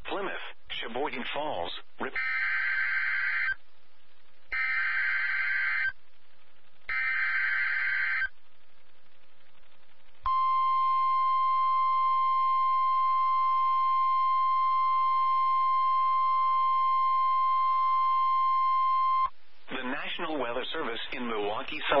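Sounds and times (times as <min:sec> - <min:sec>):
steady warning alarm tone: 0:02.2 - 0:03.6, 0:04.5 - 0:05.9, 0:06.9 - 0:08.3, 0:10.3 - 0:19.3
screeching digital data tones: 0:04.5 - 0:06.0, 0:06.9 - 0:08.3.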